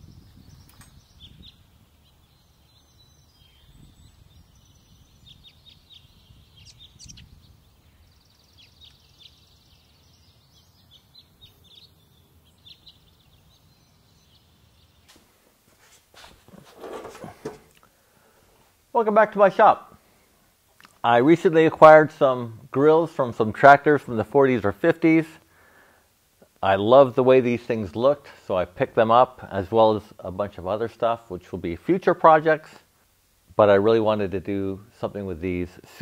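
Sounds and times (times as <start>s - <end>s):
faint birds chirping: 0.0s - 36.0s
rustles and knocks: 15.0s - 17.8s.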